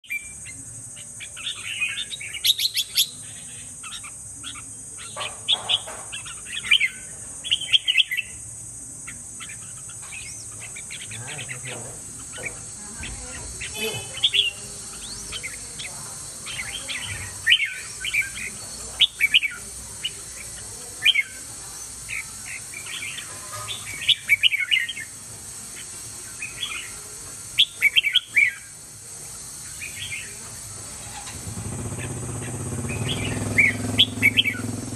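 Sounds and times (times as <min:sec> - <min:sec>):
bird singing whistled phrases: 0:32.9 - 0:34.7.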